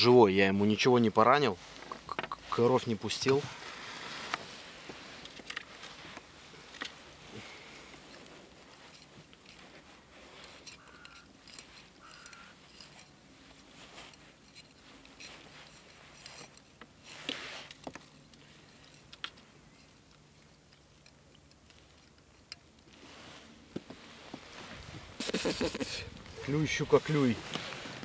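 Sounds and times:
hands rustling plastic float: 1.2s - 28.0s.

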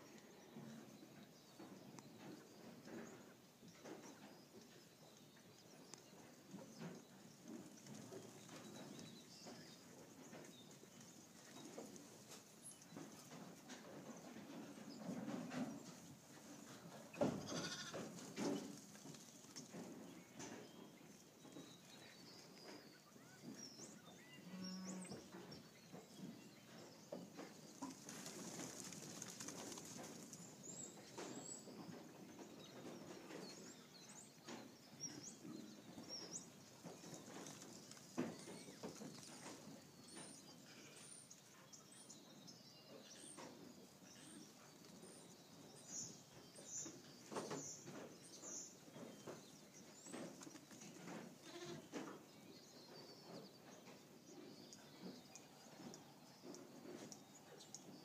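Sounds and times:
lambs running on dirt: 4.3s - 42.0s, 43.0s - 58.0s
lambs bleating: 17.5s - 18.0s, 51.4s - 51.9s.

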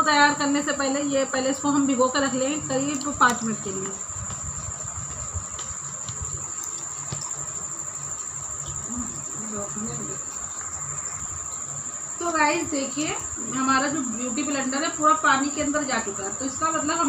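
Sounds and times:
high-pitched insect trill: 0.0s - 17.0s.

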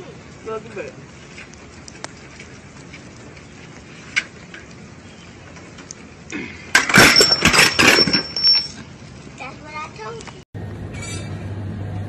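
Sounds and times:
bicycle crashing onto concrete: 6.6s - 8.9s.

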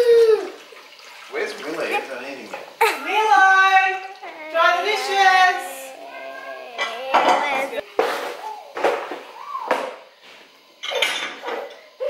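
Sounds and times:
dishes clattering in a rack: 6.8s - 10.0s, 10.8s - 11.9s.

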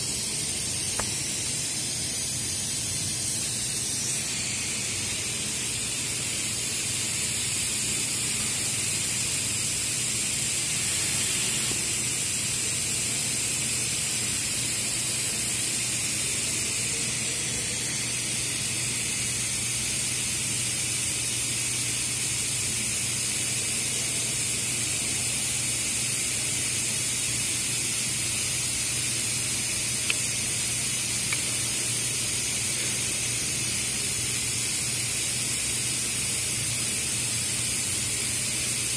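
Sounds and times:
rushing air hiss: 0.0s - 13.0s.

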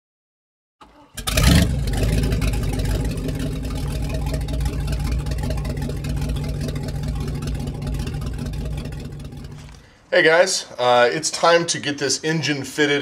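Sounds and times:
loud engine burst: 1.1s - 9.8s
boat engine idling: 1.1s - 9.9s.

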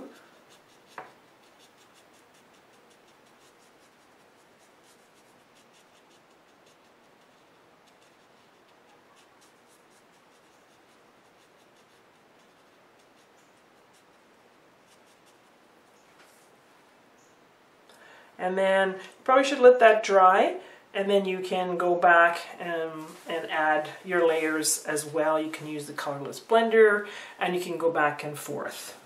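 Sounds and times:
brush scratching on paper: 0.0s - 16.6s, 22.6s - 26.7s.

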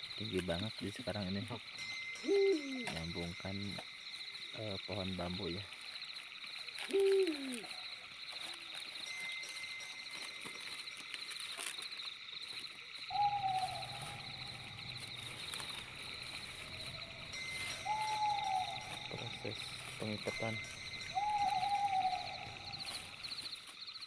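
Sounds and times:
night insects trilling: 0.0s - 24.0s
short falling hoot: 6.9s - 7.7s
low hum: 13.1s - 23.3s.

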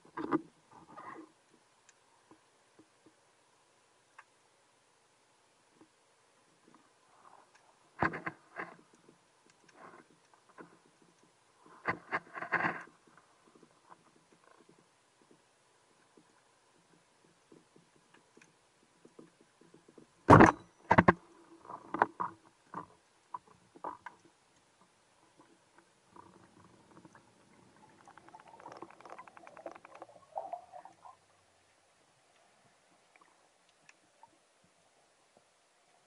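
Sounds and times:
underwater knocks: 27.9s - 30.5s.

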